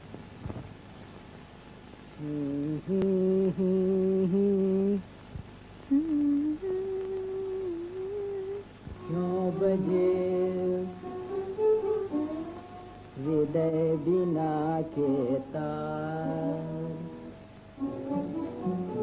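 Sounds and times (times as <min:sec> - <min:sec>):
person humming a melody: 0:02.2 - 0:05.0, 0:05.9 - 0:19.0.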